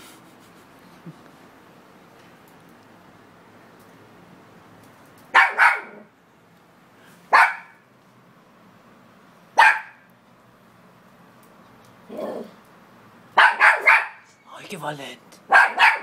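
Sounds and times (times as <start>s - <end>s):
puppy barking: 5.3s - 6.1s, 7.3s - 7.8s, 9.6s - 10.1s, 13.4s - 14.3s, 15.5s - 16.0s.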